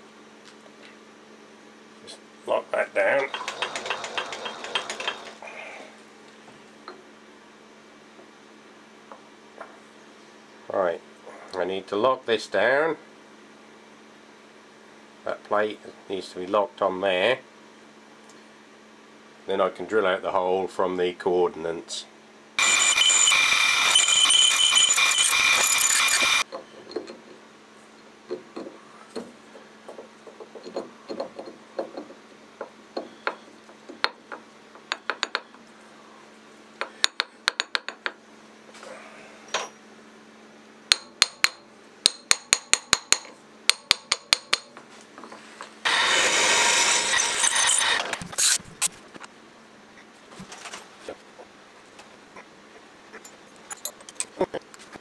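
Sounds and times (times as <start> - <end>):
machine humming: 2.7 - 5.6, 22.6 - 26.4, 45.8 - 48.9
mill drilling metal: 3.2 - 5.4, 22.6 - 26.4, 45.9 - 48.6.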